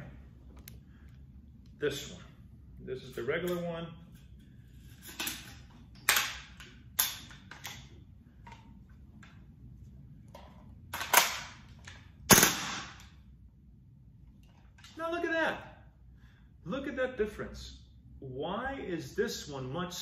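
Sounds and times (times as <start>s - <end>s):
airsoft rifle firing cracks: 12.3s - 13.1s.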